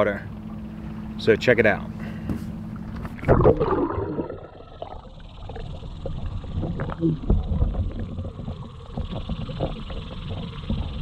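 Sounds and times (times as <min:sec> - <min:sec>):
low underwater rumble: 0:02.6 - 0:11.0
underwater gurgling: 0:02.8 - 0:11.0.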